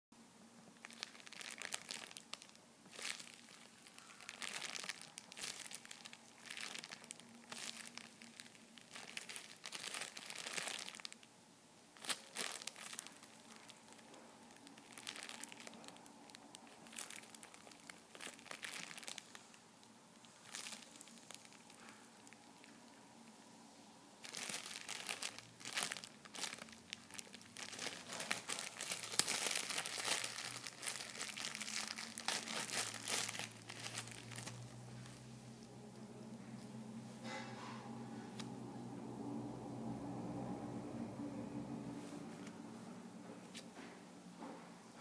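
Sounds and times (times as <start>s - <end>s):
plastic packaging crinkling: 0.8s - 11.3s, 12.0s - 23.0s, 24.2s - 37.7s.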